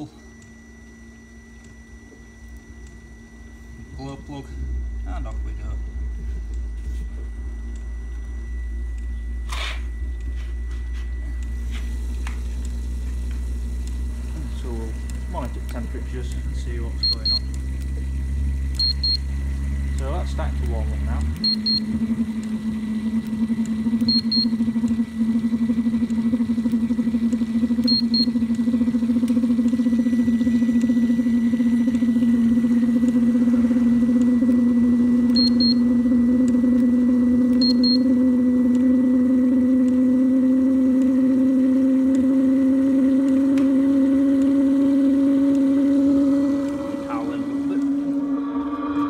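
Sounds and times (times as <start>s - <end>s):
heater blower humming: 0.0s - 49.0s
thermometer double beeps: 15.4s - 17.6s, 18.8s - 19.4s, 20.0s - 22.1s, 24.0s - 24.9s, 27.8s - 28.4s, 35.3s - 36.0s, 37.6s - 38.2s.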